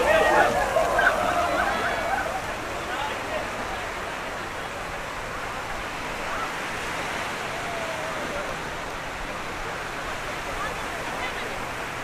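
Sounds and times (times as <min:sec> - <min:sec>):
faint distant crowd voices: 0:00.0 - 0:12.0
surf washing on a beach: 0:00.0 - 0:12.0.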